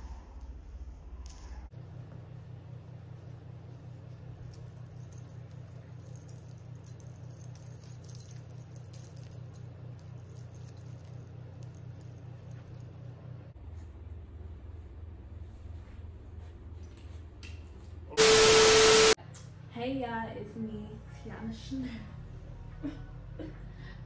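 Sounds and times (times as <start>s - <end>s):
steady low hum: 0.0s - 24.0s
jewellery chains jingling: 3.7s - 13.2s.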